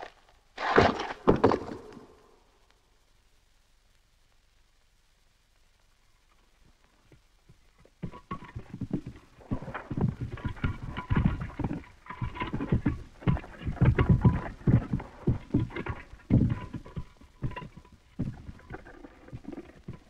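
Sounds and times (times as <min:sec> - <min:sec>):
rapid irregular knocking and clattering: 0:08.0 - 0:20.0.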